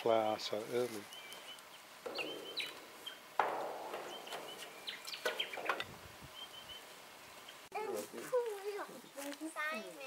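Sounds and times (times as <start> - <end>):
high bird chirps: 1.1 - 3.3, 3.9 - 7.7
harsh raspy bird calls: 1.1 - 7.7.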